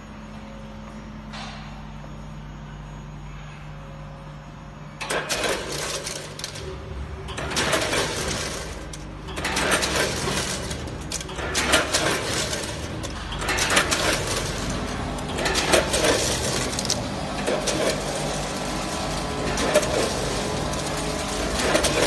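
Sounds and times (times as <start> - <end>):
low machine hum: 0.0 - 22.0
chips rustling through metal hoppers: 5.0 - 22.0
machine clicks: 5.0 - 22.0.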